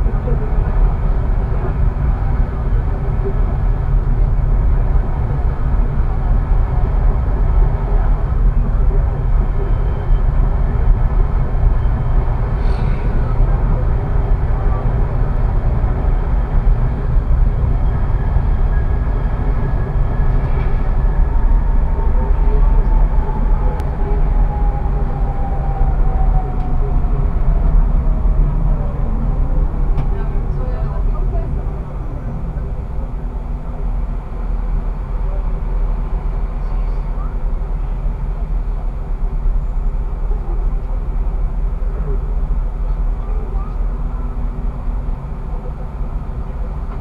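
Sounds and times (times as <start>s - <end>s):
faint whine: 0.0s - 47.0s
road traffic passing: 0.0s - 47.0s
tram wheels rumbling on rails: 0.0s - 47.0s.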